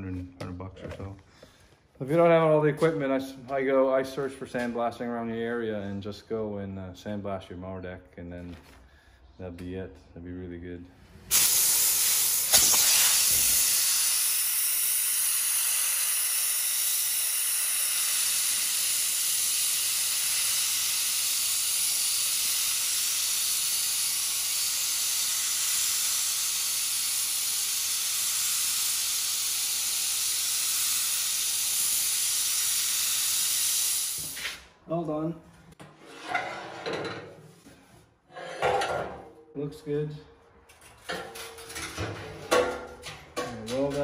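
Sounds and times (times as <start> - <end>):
sandblaster hissing: 11.3 - 34.6.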